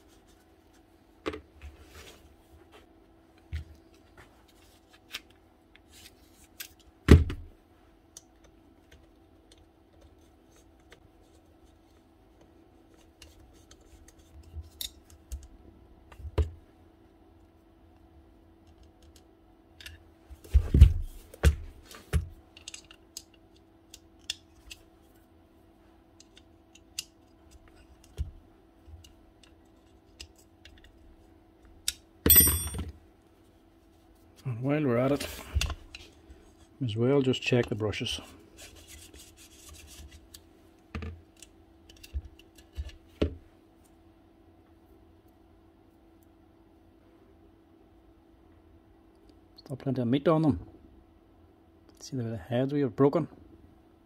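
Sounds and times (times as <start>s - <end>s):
faint steady hum: 0.0s - 54.0s.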